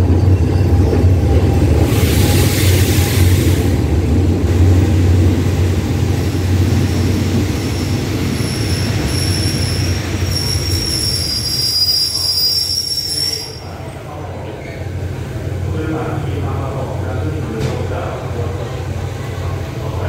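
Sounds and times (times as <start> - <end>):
metallic brake squeal: 7.7 - 13.7.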